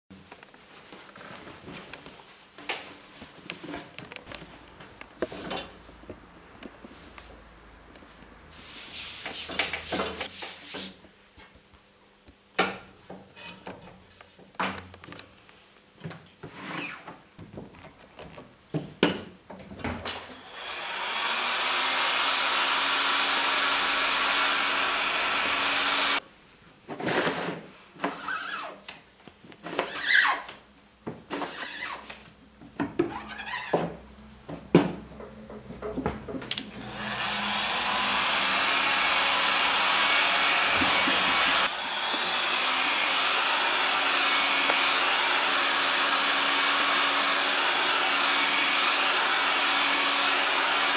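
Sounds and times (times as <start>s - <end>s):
hot-air blower running: 20.2s - 26.2s, 36.6s - 50.9s.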